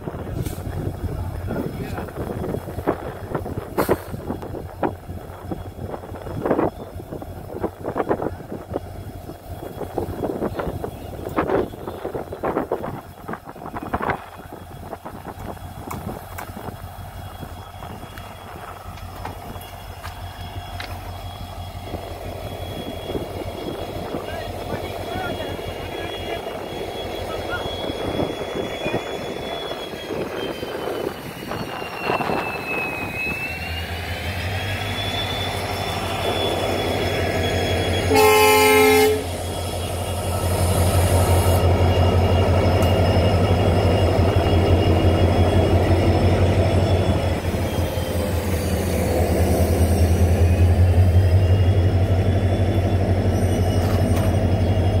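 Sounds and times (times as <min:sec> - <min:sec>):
diesel locomotive engine running: 0:00.0 - 0:55.0
locomotive horn blast: 0:37.8 - 0:41.6.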